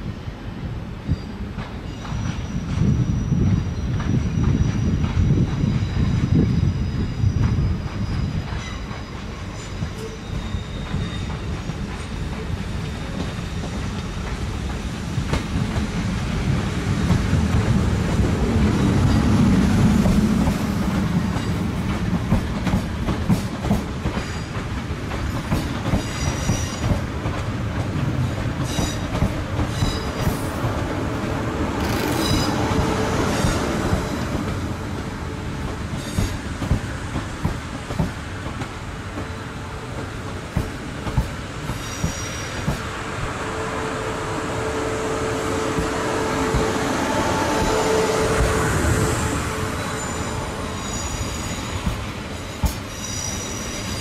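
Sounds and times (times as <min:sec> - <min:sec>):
train rumble: 0:00.0 - 0:54.0
brake and wheel squeals: 0:05.7 - 0:11.6, 0:41.7 - 0:42.7, 0:49.7 - 0:54.0
wheels clicking over rail joints: 0:31.8 - 0:32.5.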